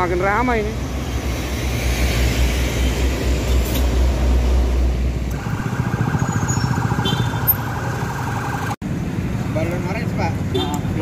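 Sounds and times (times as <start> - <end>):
heavy road traffic rumble: 0.0 - 11.0
pulsing electronic siren: 5.3 - 8.8.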